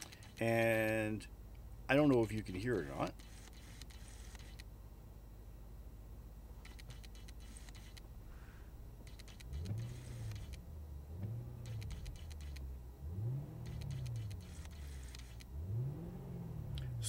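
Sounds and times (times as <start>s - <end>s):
car engine idling and revving: 9.0s - 17.0s.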